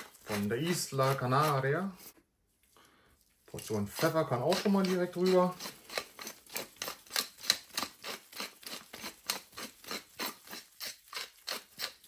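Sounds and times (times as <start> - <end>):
pepper mill grinding: 3.6 - 12.0.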